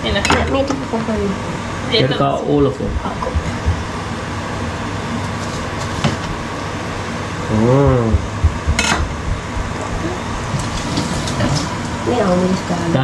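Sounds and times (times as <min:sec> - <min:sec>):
short voice sound: 0:07.5 - 0:08.2.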